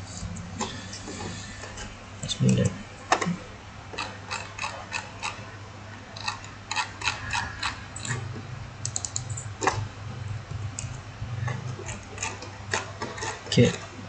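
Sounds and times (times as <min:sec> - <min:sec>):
low steady hum: 0:00.0 - 0:14.0
mouse and keyboard clicks: 0:08.8 - 0:09.8.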